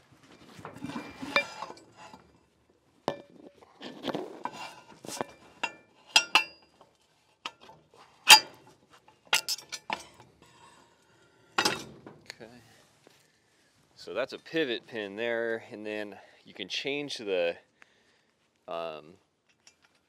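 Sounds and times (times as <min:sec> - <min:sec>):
metal crane parts clanking: 0:00.6 - 0:02.3, 0:03.1 - 0:06.9, 0:07.5 - 0:10.3, 0:11.6 - 0:12.3.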